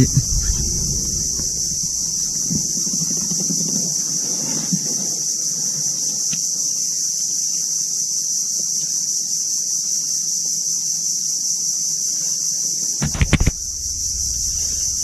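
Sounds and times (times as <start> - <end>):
high-pitched insect drone: 0.0 - 2.8, 13.0 - 15.0
sharp knocks: 13.0 - 15.0.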